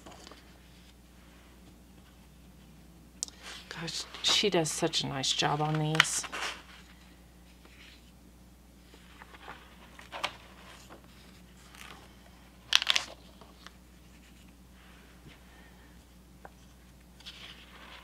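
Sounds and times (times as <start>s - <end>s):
paper pages rustling: 0.0s - 1.0s, 3.4s - 8.2s, 8.8s - 14.6s, 16.4s - 18.0s.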